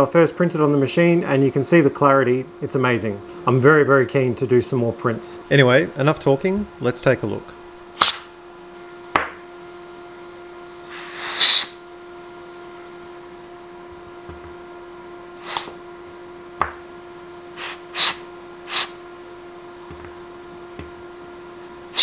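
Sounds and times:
steady hum: 0.0 - 22.0
compressed air hissing: 10.8 - 11.8, 15.4 - 15.8, 17.5 - 19.0.

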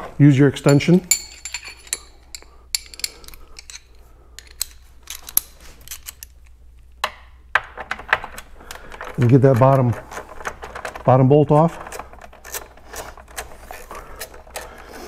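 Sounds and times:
socket wrench metal clinks: 0.7 - 3.8.

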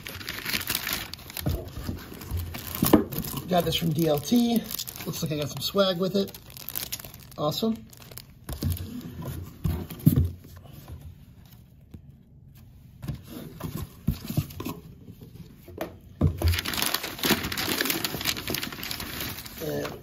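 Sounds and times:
paper crinkling and rustling: 0.0 - 10.7, 16.4 - 20.0.

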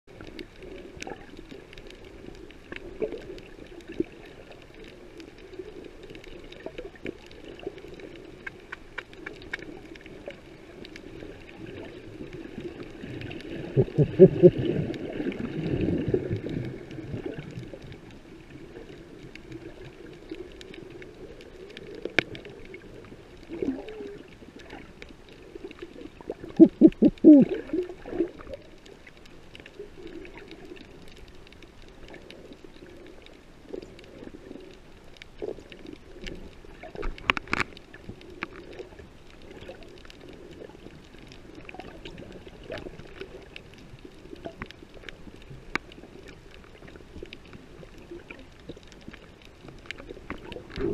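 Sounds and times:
low underwater hum: 0.1 - 50.9
underwater clicks: 6.1 - 11.0, 18.8 - 50.9
low muffled pitched pulses: 26.6 - 27.5.

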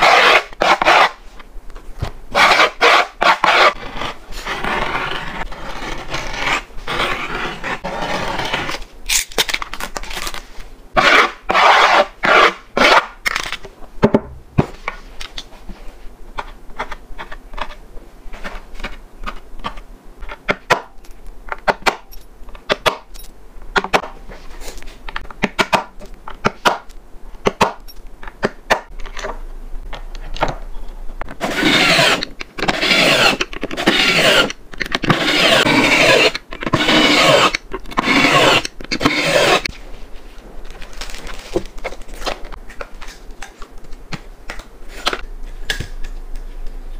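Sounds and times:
grip tape scraping: 0.0 - 1.2, 2.3 - 10.4, 31.4 - 39.8.

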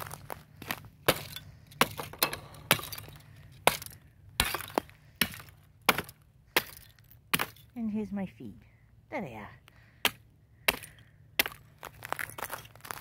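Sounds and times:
ice cracking underfoot: 0.0 - 7.6, 10.7 - 13.0.

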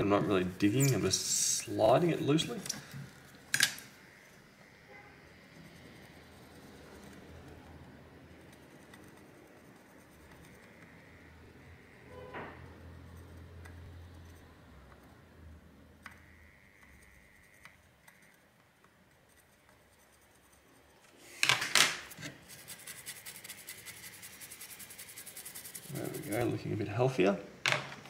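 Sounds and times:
metal tweezers scratching: 0.0 - 3.0, 5.4 - 15.1, 16.5 - 21.4, 22.0 - 26.7
toothbrush scrubbing: 5.8 - 11.0, 19.1 - 21.3, 22.3 - 27.0.

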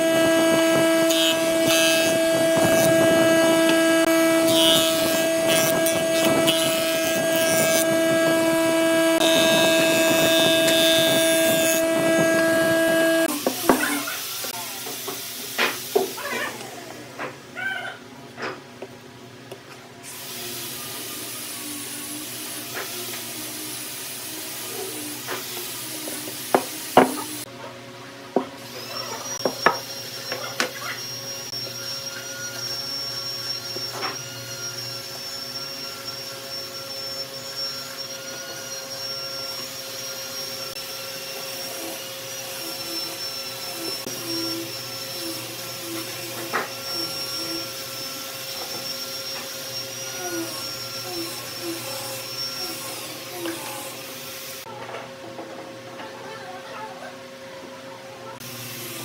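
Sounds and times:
machine motor whining and humming: 0.0 - 17.4, 28.6 - 55.7.

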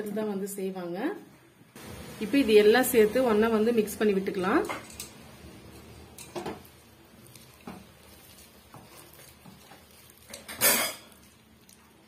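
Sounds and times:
hand squelching batter: 7.2 - 10.5.

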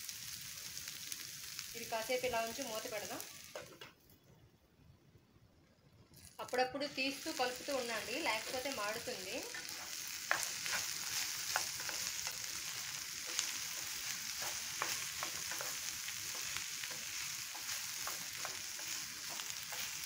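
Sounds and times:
vegetables sizzling in oil: 0.0 - 4.0, 6.1 - 20.0
spatula tapping and scraping pan: 8.4 - 20.0.

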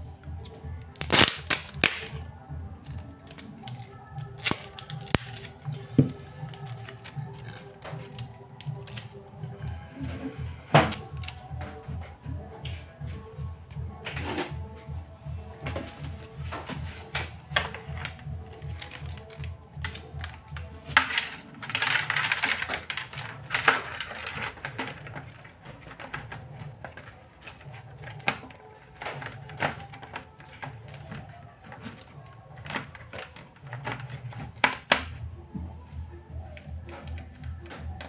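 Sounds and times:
quiet background music: 0.0 - 38.0
plastic casing clicking and tapping: 17.2 - 35.2.

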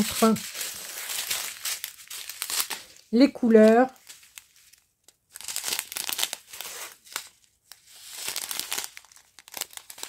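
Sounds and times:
plastic bags crinkling: 0.0 - 10.0.

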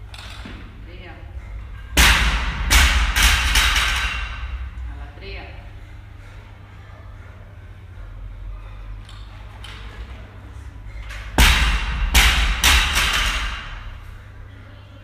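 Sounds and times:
bar and plates rattling: 1.6 - 4.8, 11.0 - 14.0.

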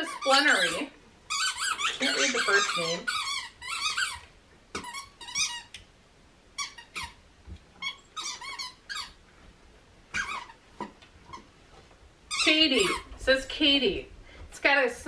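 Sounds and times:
dog chewing toy: 0.0 - 5.7, 6.6 - 7.2, 7.8 - 9.2, 10.1 - 11.6
squeaky toy squeaks: 0.0 - 5.7, 6.6 - 7.2, 7.8 - 9.2, 10.1 - 10.6, 12.3 - 13.1.

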